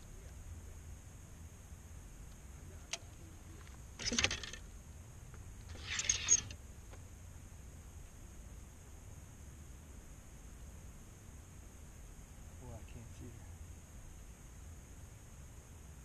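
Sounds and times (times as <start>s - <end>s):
fishing reel cranking: 4.0s - 4.6s, 5.7s - 6.5s.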